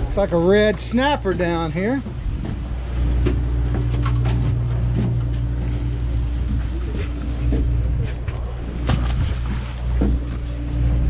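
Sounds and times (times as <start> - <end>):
boat machinery drone: 0.0 - 11.0.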